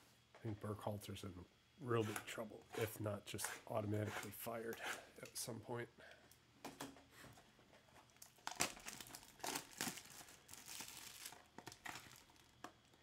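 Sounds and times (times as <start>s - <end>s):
plastic wrap tearing and crinkling: 8.1s - 13.0s.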